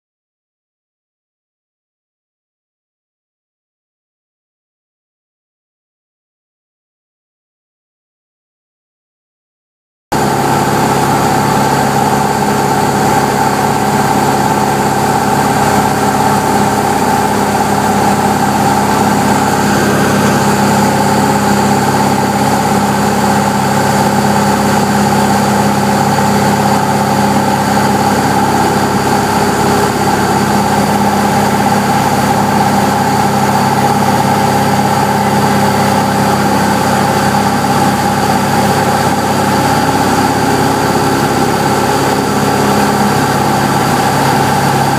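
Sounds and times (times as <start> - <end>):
aircraft engine and propeller droning: 10.2 - 44.9.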